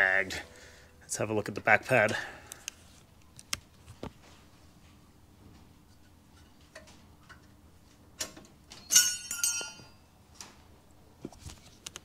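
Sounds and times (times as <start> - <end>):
metal brake pad clinking: 8.8 - 10.1.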